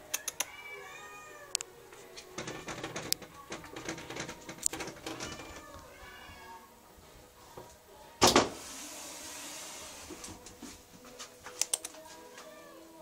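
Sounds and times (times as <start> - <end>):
pen door clattering: 2.3 - 5.6
light clicks: 11.5 - 12.0.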